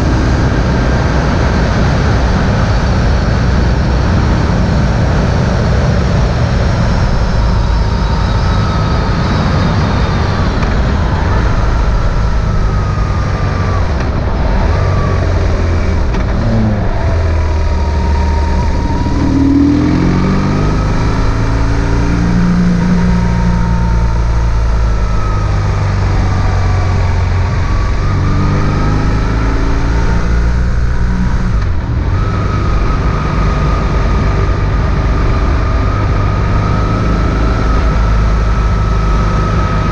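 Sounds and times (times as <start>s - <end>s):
motorcycle engine running: 0.0s - 39.9s
wind and road noise: 0.0s - 39.9s.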